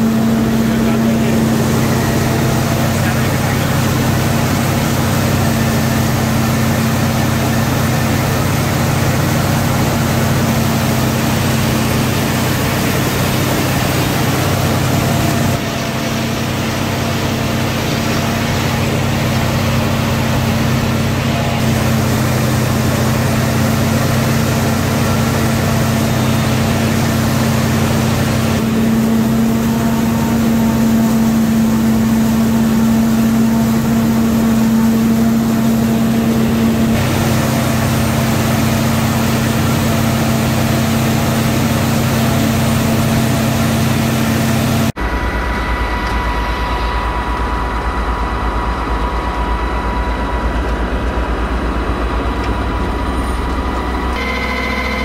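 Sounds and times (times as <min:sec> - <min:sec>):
forage harvester engine hum: 0:00.0 - 0:55.0.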